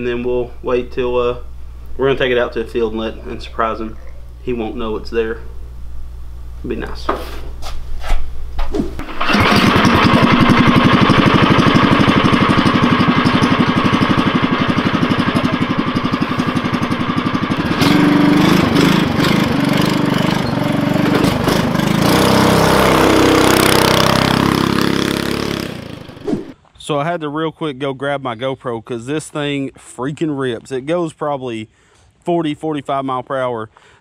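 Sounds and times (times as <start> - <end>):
go-kart engine: 9.0 - 26.3.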